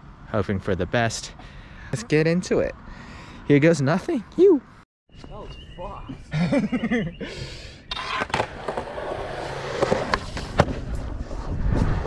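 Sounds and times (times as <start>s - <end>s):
skateboard wheels rolling on asphalt: 7.9s - 12.0s.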